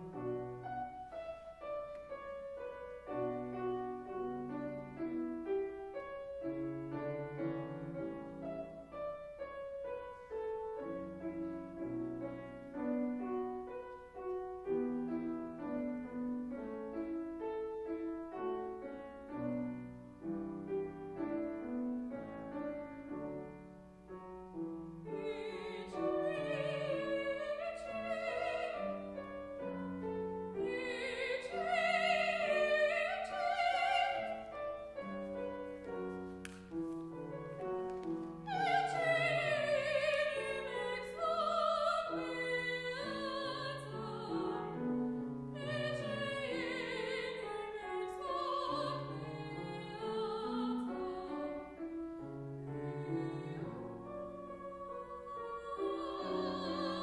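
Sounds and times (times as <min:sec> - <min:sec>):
grand piano accompaniment: 0:00.0 - 0:57.0
woman singing operatic style: 0:25.1 - 0:34.6, 0:38.4 - 0:51.8, 0:52.7 - 0:57.0.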